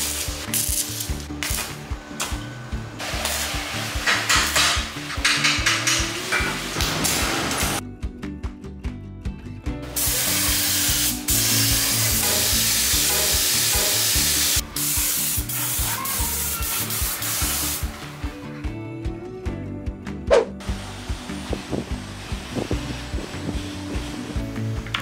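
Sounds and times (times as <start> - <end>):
background music: 0.0 - 25.0
spray gun hissing: 10.0 - 17.9.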